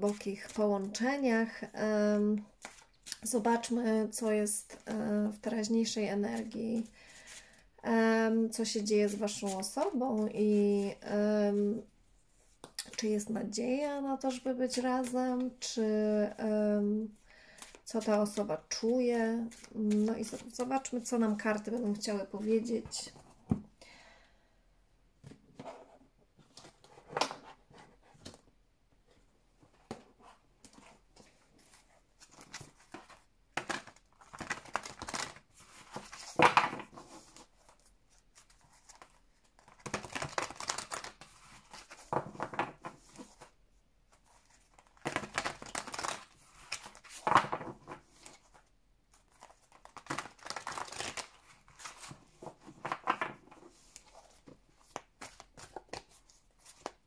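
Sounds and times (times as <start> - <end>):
cards being shuffled by hand: 30.6 - 43.5, 44.1 - 57.0.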